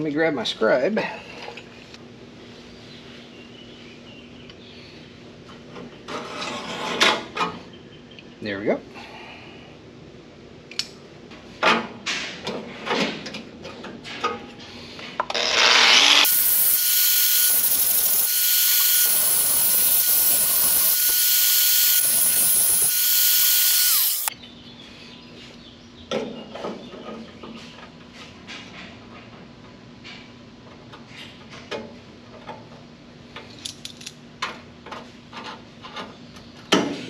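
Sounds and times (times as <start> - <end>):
angle grinder grinding steel: 15.3 - 24.3.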